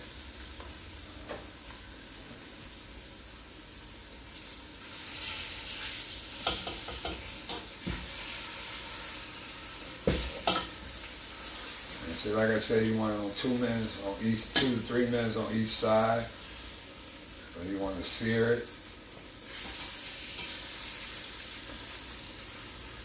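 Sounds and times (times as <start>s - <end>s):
meat sizzling in oil: 0.0s - 23.0s.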